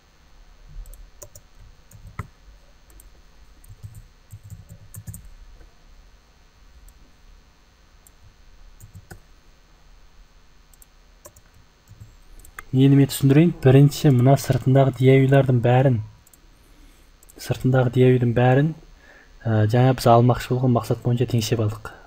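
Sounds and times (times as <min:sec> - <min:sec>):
computer keyboard clicking: 0:00.8 - 0:02.3, 0:02.9 - 0:05.3, 0:08.8 - 0:09.2, 0:10.7 - 0:12.7
computer mouse clicking: 0:00.8 - 0:02.3, 0:02.9 - 0:05.3, 0:08.0 - 0:09.2, 0:10.7 - 0:12.7, 0:16.2 - 0:16.5, 0:17.2 - 0:17.4.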